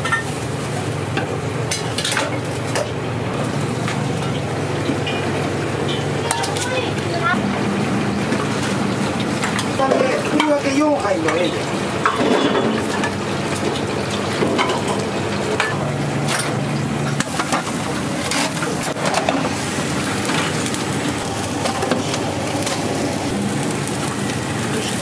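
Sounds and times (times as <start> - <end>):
rushing cooking noise: 0.0 - 25.0
pans and utensils clinking: 8.3 - 20.8.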